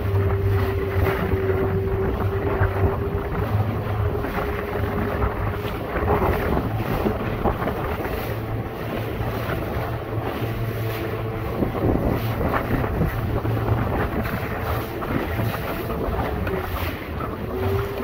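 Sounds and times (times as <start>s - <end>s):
outboard motor droning: 0.0s - 18.0s
wave splashing against hull: 0.0s - 18.0s
wind buffeting microphone: 0.0s - 18.0s.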